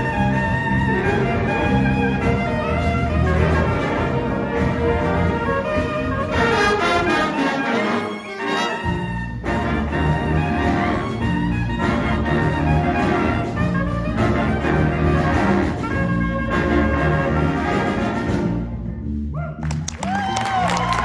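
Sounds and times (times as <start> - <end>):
jazz band playing: 0.0 - 21.0
audience cheering and whooping: 19.4 - 21.0.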